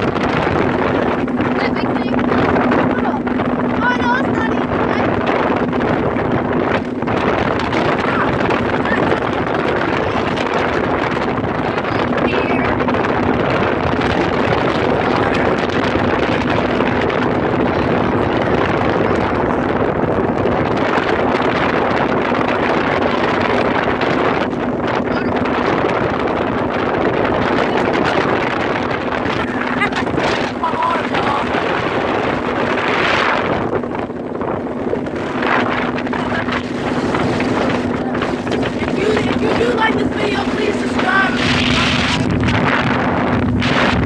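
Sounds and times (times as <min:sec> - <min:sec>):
motorboat engine and wind rush: 0:00.0 - 0:44.0.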